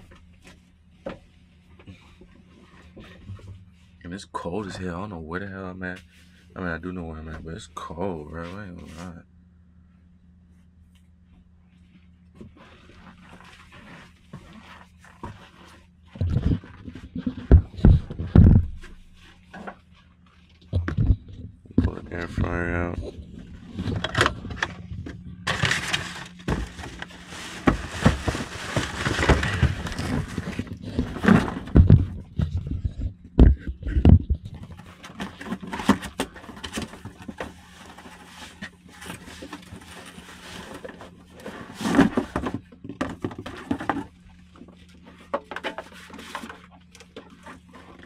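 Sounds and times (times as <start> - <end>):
steady low hum: 0.0 - 48.0
rustling paper and cardboard: 11.8 - 48.0
scraping: 12.5 - 33.0.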